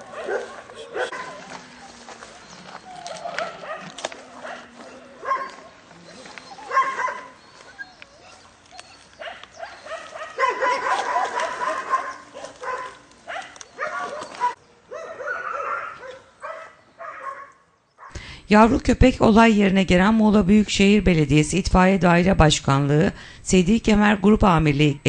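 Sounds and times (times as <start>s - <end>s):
puppy yelping and whining: 0.2s - 16.2s.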